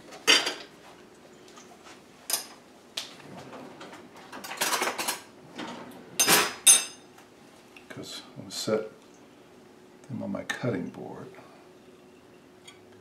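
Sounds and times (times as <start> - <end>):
drawer opening: 3.1 - 6.6
metal utensils clattering: 3.8 - 7.0.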